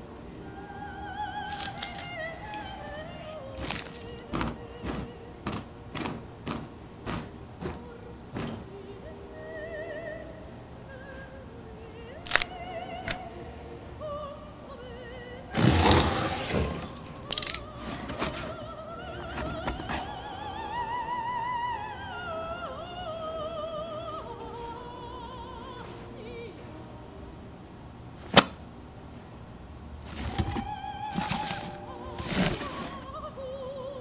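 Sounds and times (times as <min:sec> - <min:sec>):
operatic singing with vibrato: 0:00.0 - 0:27.9, 0:30.0 - 0:34.0
cardboard box being cut open: 0:01.5 - 0:02.6, 0:15.6 - 0:18.5, 0:30.1 - 0:30.6, 0:31.2 - 0:33.0.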